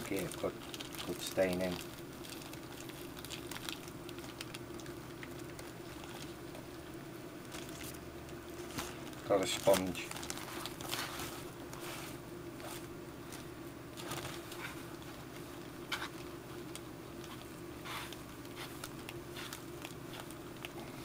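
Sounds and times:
plastic bag crinkling: 0.0 - 6.8, 7.4 - 21.0
faint steady hum: 0.0 - 21.0.

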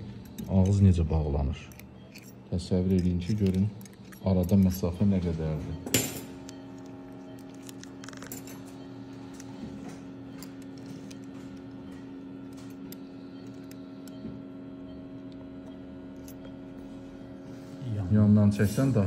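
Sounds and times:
steady hum of fixed tones: 0.0 - 19.0
metal instruments clicking on teeth: 0.2 - 0.9, 1.6 - 5.0.

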